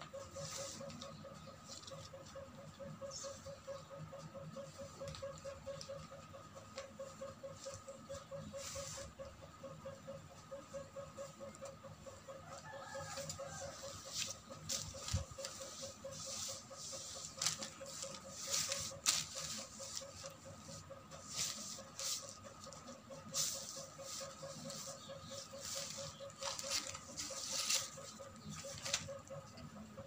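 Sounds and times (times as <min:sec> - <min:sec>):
fabric and plastic rustling: 0:14.0 - 0:20.4, 0:25.6 - 0:29.1.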